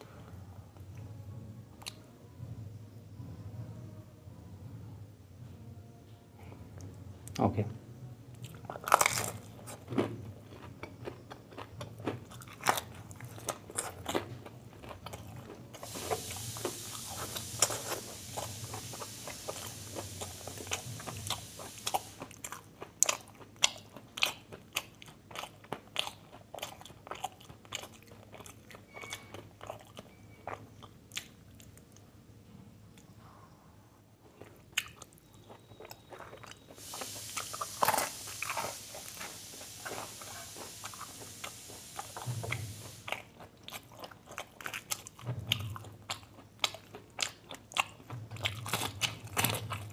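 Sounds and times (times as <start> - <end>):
crunchy bites and chewing: 8.4 - 32.0, 34.4 - 49.9
steady hiss: 15.8 - 22.4, 36.7 - 43.4.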